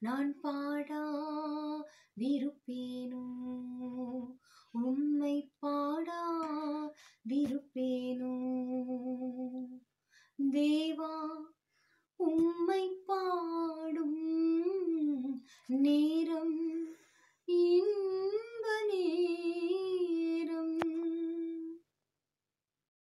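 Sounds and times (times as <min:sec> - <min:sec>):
woman singing unaccompanied: 0:00.0 - 0:09.8, 0:10.4 - 0:11.6, 0:12.2 - 0:21.8
singer breathing: 0:16.8 - 0:17.5.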